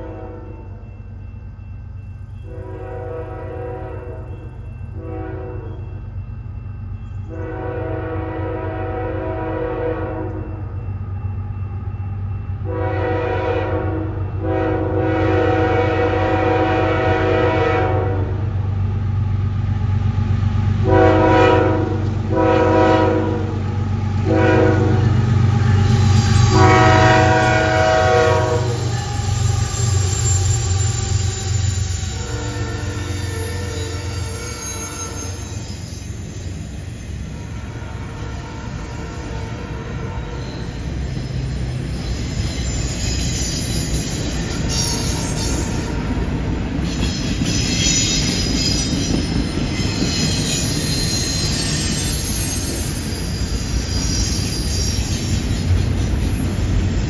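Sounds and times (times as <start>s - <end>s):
train horn blasts: 0.0s - 0.8s, 2.4s - 6.0s, 7.3s - 10.6s, 12.6s - 18.6s, 20.8s - 36.2s, 37.4s - 40.8s, 44.5s - 46.4s
diesel locomotive rumble: 0.0s - 57.0s.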